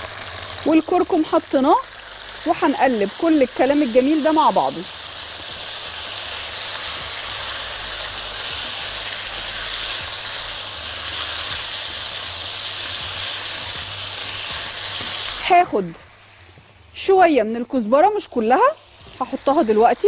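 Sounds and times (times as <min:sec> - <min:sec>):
potatoes sizzling in hot oil: 0:00.0 - 0:20.0
spatula stirring in pan: 0:04.9 - 0:15.5.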